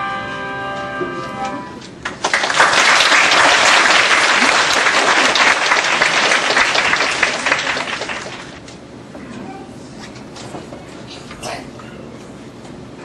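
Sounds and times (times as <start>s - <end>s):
audience applauding: 2.0s - 8.6s.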